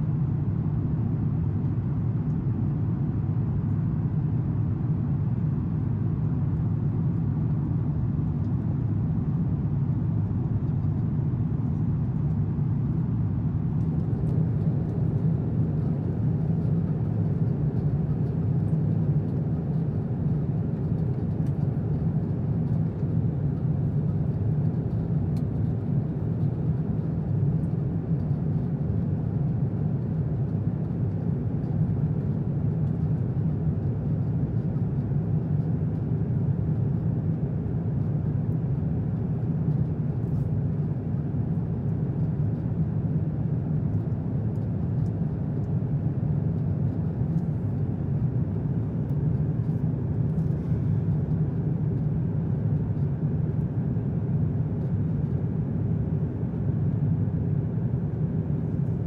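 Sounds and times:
airplane cabin engine and airflow: 0:00.0 - 0:59.0.

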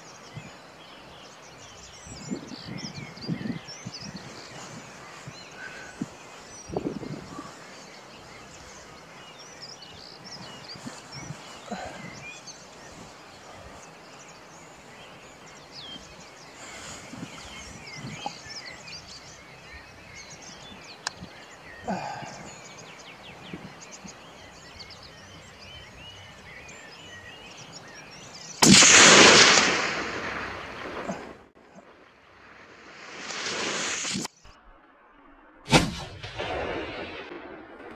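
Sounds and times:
faint bird calls: 0:00.0 - 0:32.2
rifle shot: 0:28.6 - 0:31.3, 0:35.7 - 0:37.9.

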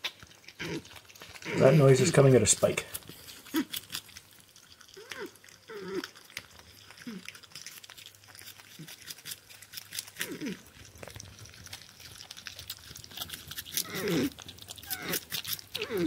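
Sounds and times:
chewing food clicks and crunches: 0:00.0 - 0:16.0
porcupine whining calls: 0:13.7 - 0:16.0.

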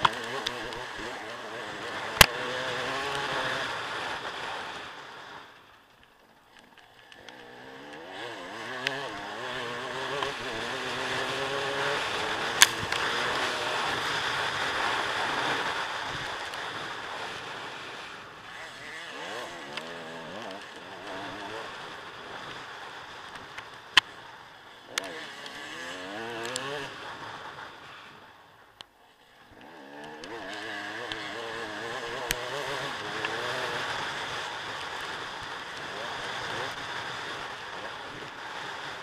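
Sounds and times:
dirt bike engine revving: 0:00.0 - 0:05.4, 0:06.9 - 0:28.2, 0:29.2 - 0:39.0.

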